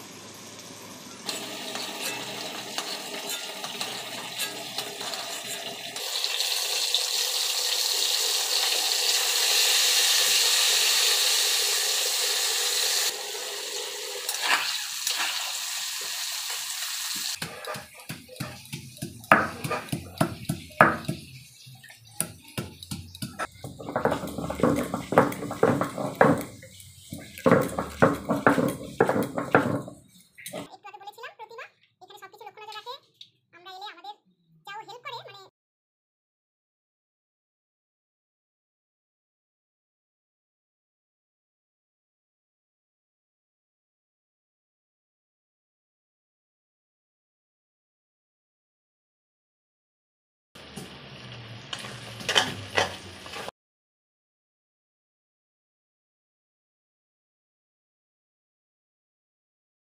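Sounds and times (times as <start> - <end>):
vegetables sizzling in oil: 0.0 - 30.7, 50.6 - 53.5
stone roller crushing garlic: 1.3 - 6.1, 17.2 - 30.7.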